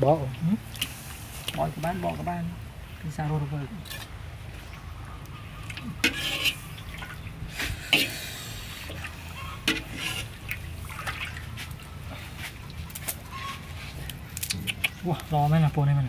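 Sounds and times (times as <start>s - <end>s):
water sloshing in a wok: 0.0s - 14.2s
water splashing and dripping: 0.0s - 15.2s.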